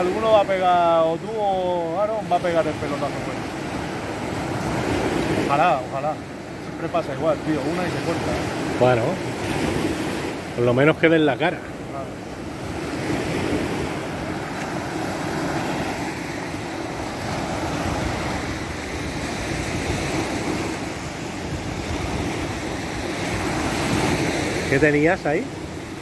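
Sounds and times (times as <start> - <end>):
surf breaking on a beach: 0.0 - 26.0
wind on microphone: 11.6 - 24.9.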